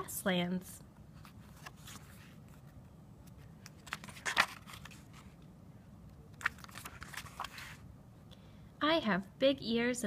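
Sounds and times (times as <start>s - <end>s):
book pages turning: 1.1s - 5.4s, 6.3s - 7.9s.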